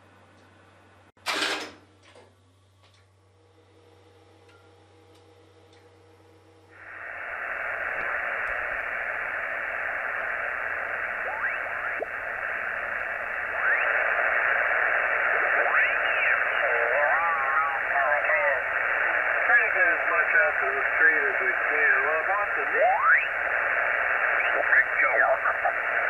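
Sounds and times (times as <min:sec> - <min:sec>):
faint hum: 0:01.9 - 0:26.0
radio static: 0:06.8 - 0:26.0
radio stations whistling: 0:06.8 - 0:26.0.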